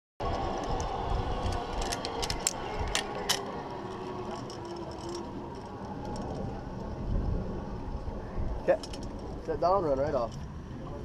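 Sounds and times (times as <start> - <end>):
wind buffeting microphone: 0.2 - 11.0
metallic clicks of carabiners: 0.6 - 6.5, 8.7 - 9.3.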